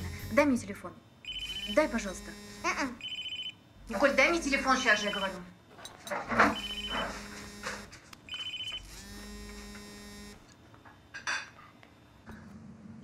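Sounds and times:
phone vibrating buzz: 0:00.0 - 0:00.5, 0:01.2 - 0:10.5
high ringtone beeps: 0:01.2 - 0:02.1, 0:03.0 - 0:03.6, 0:04.9 - 0:05.4, 0:06.5 - 0:07.2, 0:08.3 - 0:08.9.

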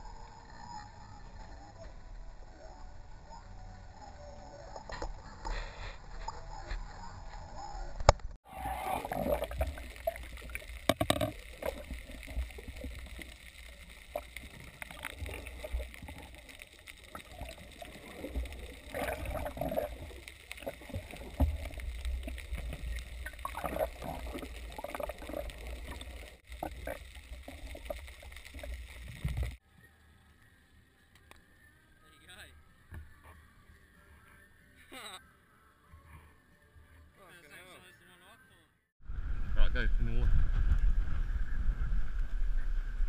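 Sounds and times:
water gurgling underwater: 0:08.5 - 0:29.6
low rumble: 0:39.0 - 0:43.0.

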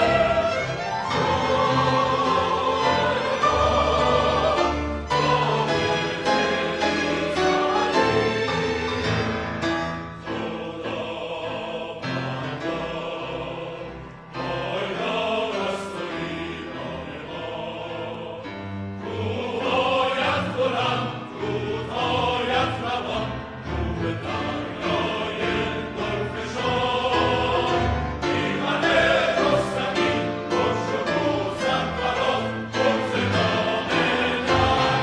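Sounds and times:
symphony orchestra with violins: 0:00.0 - 0:11.1
mixed choir singing: 0:00.0 - 0:35.0.

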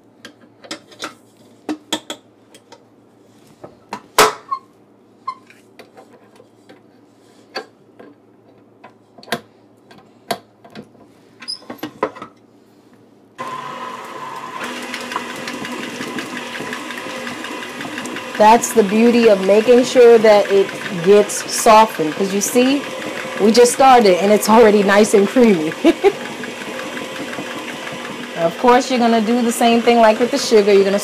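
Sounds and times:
stand mixer motor running: 0:13.4 - 0:31.0.

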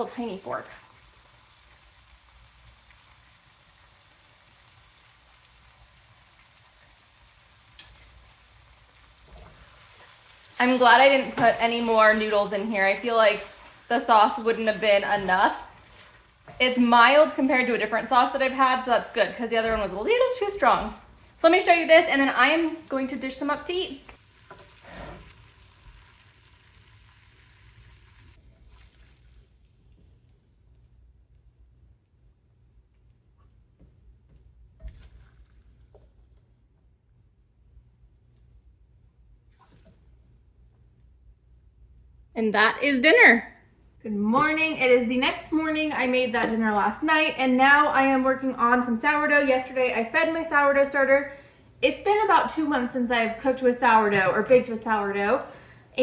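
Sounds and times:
sauce sizzling in a pan: 0:00.1 - 0:18.8, 0:20.4 - 0:30.4.

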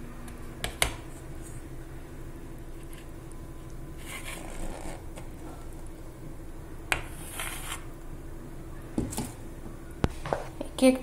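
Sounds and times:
batter scraped from glass bowl: 0:07.0 - 0:07.9.

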